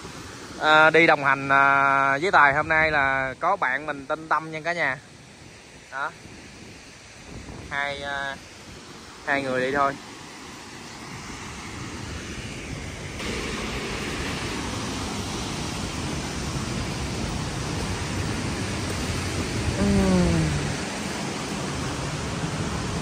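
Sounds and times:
waterfall rushing: 0:07.0 - 0:23.0
short falling voice sound: 0:19.8 - 0:20.8.

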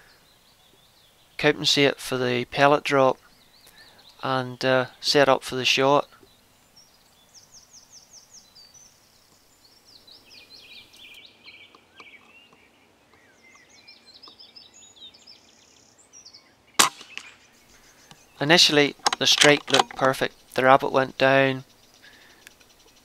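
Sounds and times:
songbirds chirping and trilling: 0:00.0 - 0:23.0
air rifle firing: 0:16.8 - 0:17.5.

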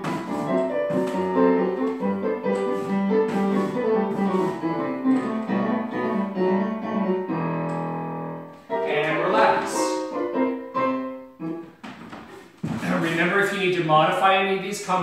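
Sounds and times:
solo piano music: 0:00.0 - 0:11.9.

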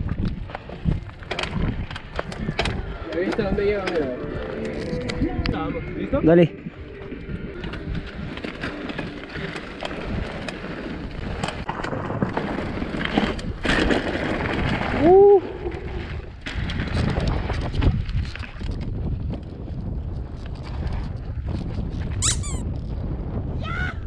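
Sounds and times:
bike rattling clicks: 0:00.0 - 0:05.5
wind buffeting camera: 0:00.0 - 0:24.0.

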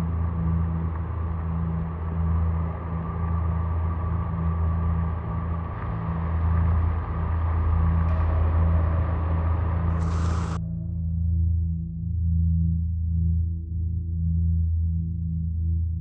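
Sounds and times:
vehicle engine droning: 0:00.0 - 0:10.6
heavy rain hiss: 0:09.4 - 0:10.6.

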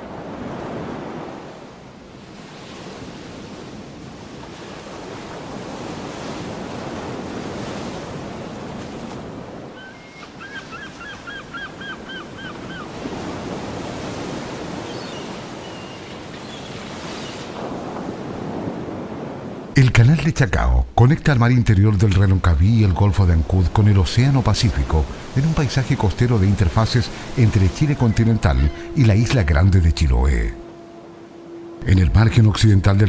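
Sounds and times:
ocean surf breaking: 0:00.0 - 0:33.0
gull calling: 0:09.8 - 0:13.6, 0:14.4 - 0:17.4, 0:24.2 - 0:32.5.

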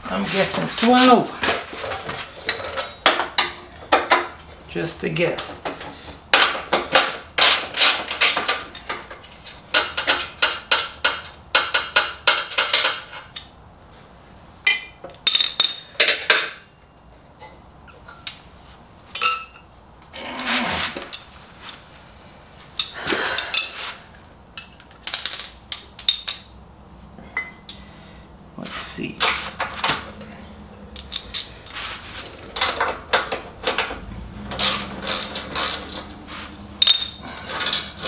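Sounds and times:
metal clinks: 0:19.2 - 0:19.8, 0:24.6 - 0:25.4, 0:36.8 - 0:38.0
tools scraping metal: 0:31.0 - 0:38.0
socket ratchet clicking: 0:34.5 - 0:35.9.

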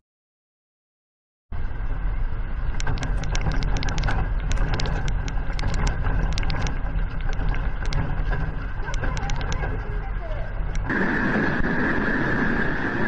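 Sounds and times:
low rumble: 0:01.5 - 0:13.0
quick irregular clicks and rattles: 0:02.8 - 0:10.0.

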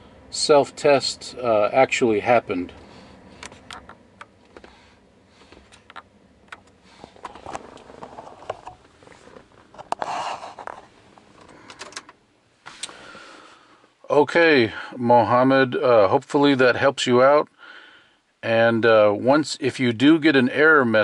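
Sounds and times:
clothing and seat rustling: 0:02.6 - 0:06.0, 0:06.6 - 0:13.9.

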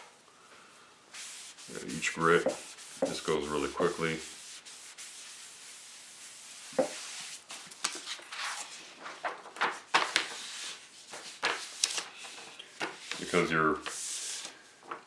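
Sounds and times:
cloth rag wiping plastic film: 0:01.1 - 0:08.8, 0:09.8 - 0:15.0
film and paper crinkling: 0:11.1 - 0:15.0.

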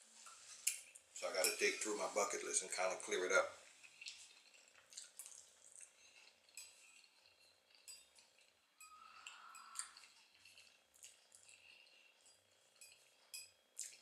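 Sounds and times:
chewing with mouth clicks: 0:03.7 - 0:14.0
fork scraping on a plate: 0:08.8 - 0:10.7.

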